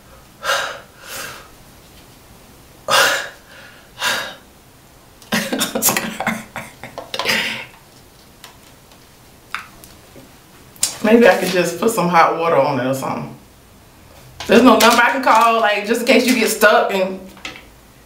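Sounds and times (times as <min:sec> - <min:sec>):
woman gasping: 0:06.1 - 0:07.7.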